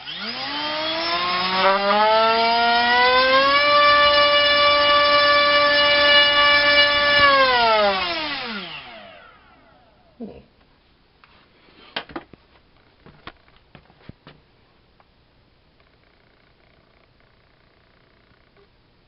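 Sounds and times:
electric motor propeller whine: 0.0 - 10.0.

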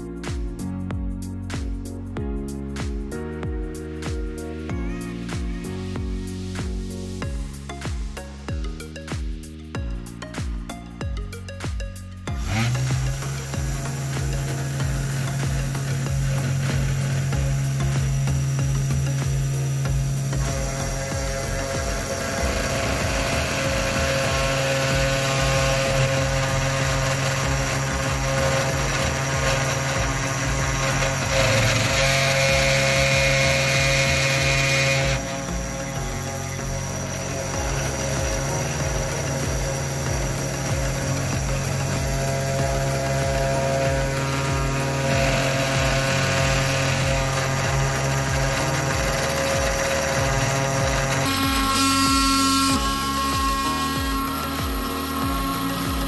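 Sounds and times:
router spindle whining cutting wood: 12.3 - 56.0
stepper motors whirring: 12.3 - 56.0.

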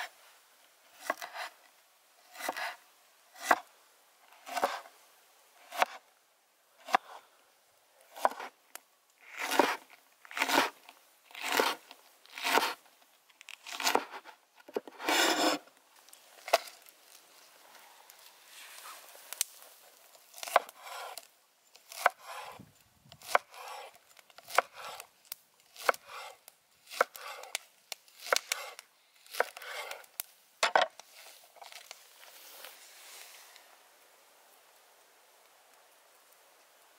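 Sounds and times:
soft handling sounds: 30.9 - 33.9.

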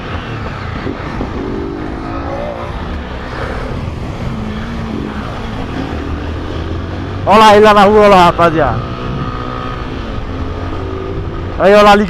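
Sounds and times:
wind noise: 0.0 - 7.2
motorcycle engine revving up: 0.0 - 7.3.

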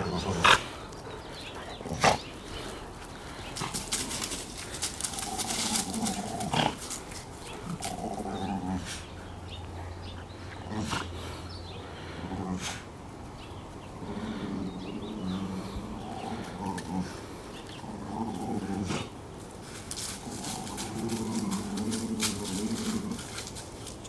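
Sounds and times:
paws scuffling on dry leaves: 0.0 - 9.1, 17.7 - 24.0
dogs play-growling: 0.0 - 24.0.

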